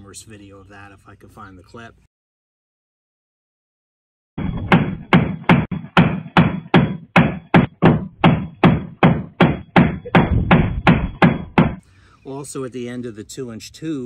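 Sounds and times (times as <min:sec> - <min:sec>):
sledgehammer striking metal: 0:04.4 - 0:11.8.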